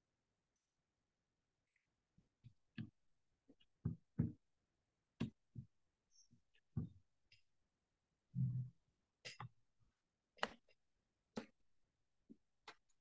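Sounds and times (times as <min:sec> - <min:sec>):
irregular clicks and soft taps: 0:01.6 - 0:04.5, 0:05.1 - 0:07.6, 0:09.2 - 0:13.0.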